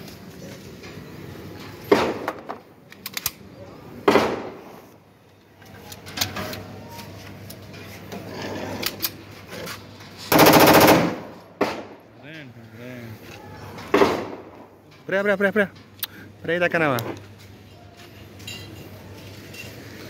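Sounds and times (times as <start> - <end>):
pistol shots with echo: 4.0 - 4.7, 10.3 - 12.0.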